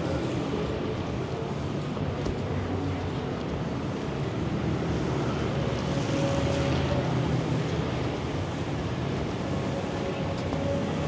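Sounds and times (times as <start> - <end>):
vehicle engines in traffic: 0.0 - 11.0.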